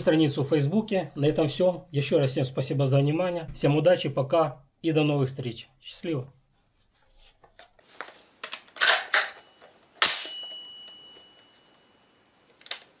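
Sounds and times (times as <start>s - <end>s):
sharp metal clack: 8.8s - 11.0s
thin high metallic ring: 9.4s - 12.3s.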